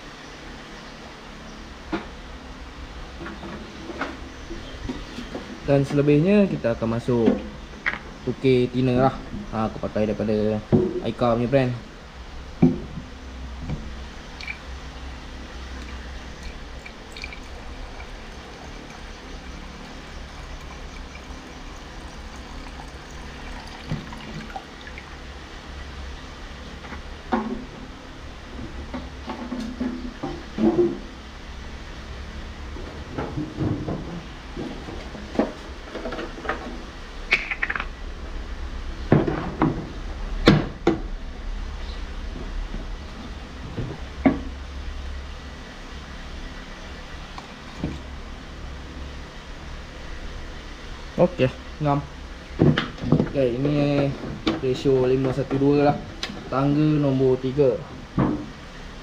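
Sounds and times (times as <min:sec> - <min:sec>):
liquid pouring into plastic cup: 0:14.4 - 0:14.6, 0:15.8 - 0:25.2.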